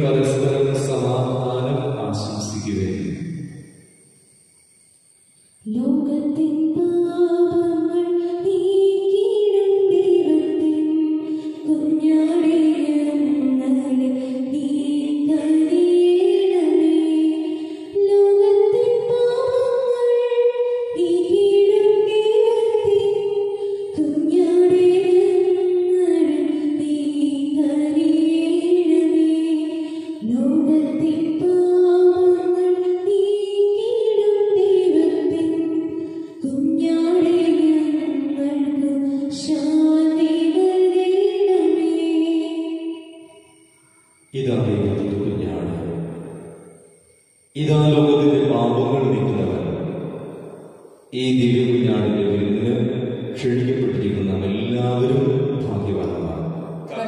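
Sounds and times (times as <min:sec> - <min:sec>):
woman singing a hymn: 0:05.7 - 0:43.2.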